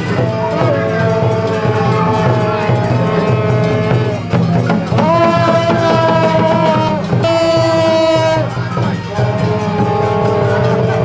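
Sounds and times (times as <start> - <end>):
brass band playing: 0.0 - 11.0
steady low beat: 0.0 - 11.0
slide trombone long notes: 5.0 - 11.0.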